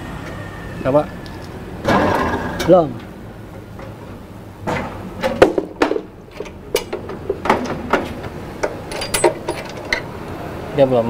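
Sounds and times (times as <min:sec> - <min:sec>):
metallic clunks and clicks: 0:01.8 - 0:10.1.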